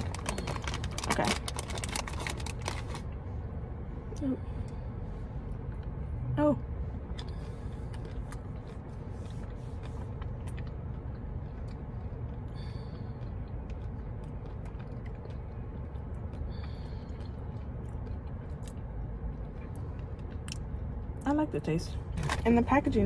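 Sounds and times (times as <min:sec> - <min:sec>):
crunchy snack being chewed: 0:00.0 - 0:03.1, 0:07.1 - 0:20.8
low rumble inside car cabin: 0:00.0 - 0:23.0.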